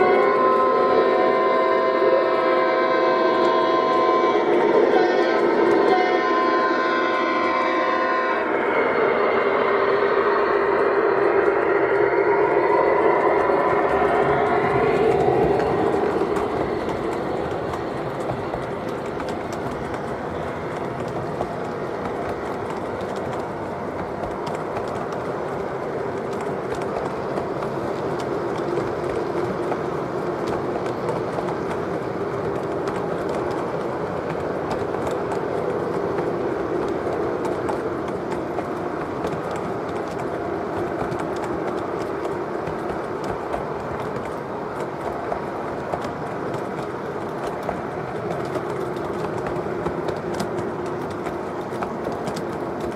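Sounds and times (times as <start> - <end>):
model train wheels rumbling on rails: 0.0 - 52.9.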